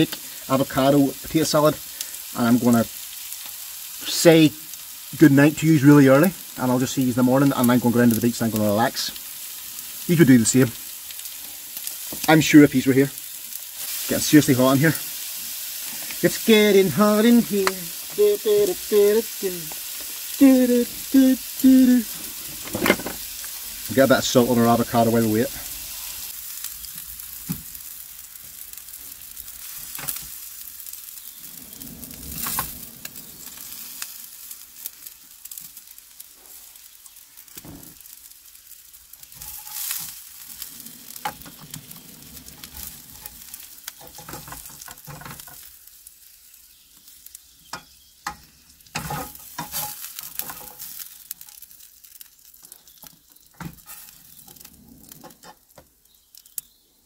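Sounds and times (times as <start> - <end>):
onions sizzling in a frying pan: 0.0 - 57.0
fork scraping a pan: 39.3 - 40.2, 47.8 - 50.9, 53.6 - 54.2.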